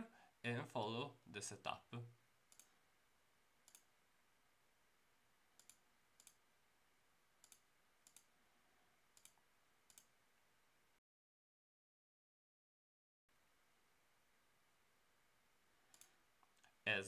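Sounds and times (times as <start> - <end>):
low steady hiss: 0.0 - 11.0, 13.3 - 17.0
computer mouse clicks: 2.5 - 2.8, 3.6 - 3.9, 5.6 - 6.4, 7.4 - 8.3, 9.2 - 10.1, 15.9 - 16.8.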